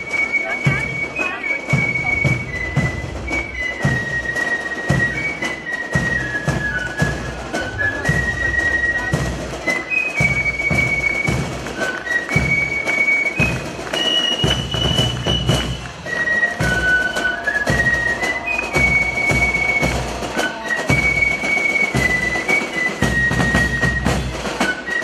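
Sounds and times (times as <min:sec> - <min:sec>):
drumbeats: 0:00.0 - 0:25.0
high whistling fife melody: 0:00.0 - 0:25.0.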